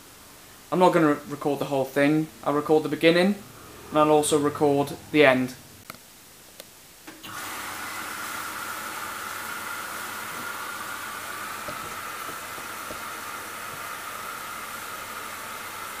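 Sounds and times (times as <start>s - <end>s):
water rushing into washing machine: 7.1s - 16.0s.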